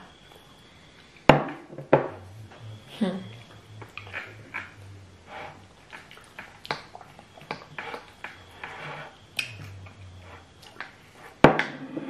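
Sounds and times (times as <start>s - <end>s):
wet mouth clicks and chewing: 3.3s - 4.8s, 5.8s - 8.5s, 9.4s - 10.0s.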